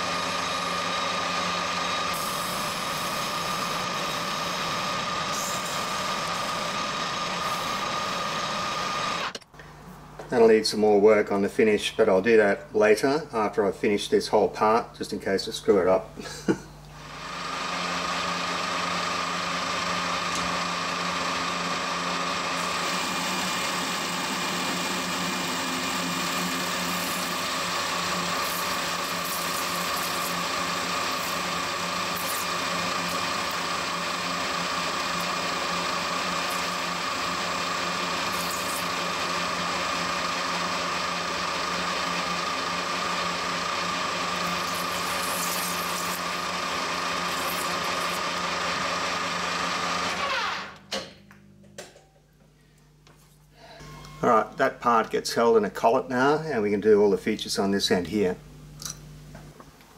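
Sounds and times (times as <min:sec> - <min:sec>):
metal lathe running: 0:00.0 - 0:09.4, 0:17.0 - 0:50.7
parting tool cutting steel: 0:22.6 - 0:48.6.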